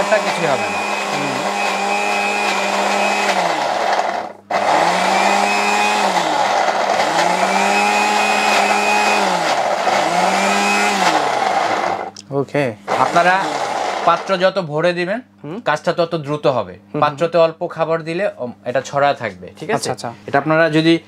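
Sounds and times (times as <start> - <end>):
mixer grinder motor grinding: 0.0 - 12.2, 12.9 - 14.6.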